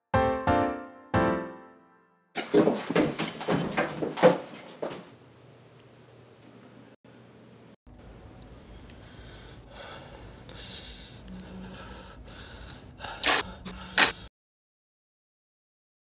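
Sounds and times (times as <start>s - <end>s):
person breathing hard: 8.6s - 14.3s
person gasping sharply: 11.5s - 14.3s.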